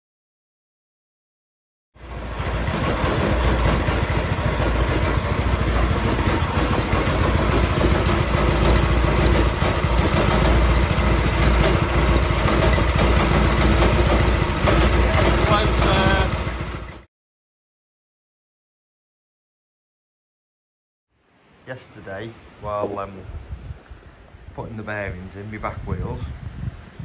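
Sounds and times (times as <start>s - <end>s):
small petrol engine running: 2.0s - 17.1s.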